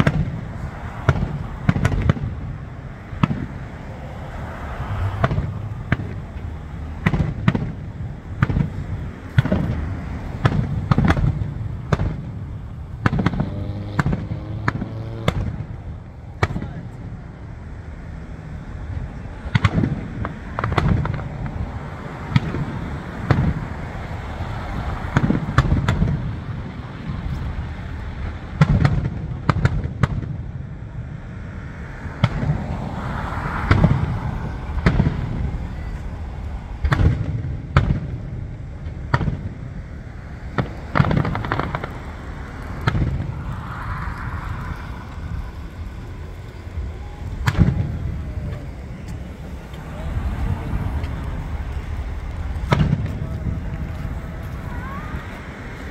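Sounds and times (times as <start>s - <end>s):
firework shells bursting: 5.2s - 16.7s, 33.6s - 53.9s
firework hissing: 30.8s - 55.9s.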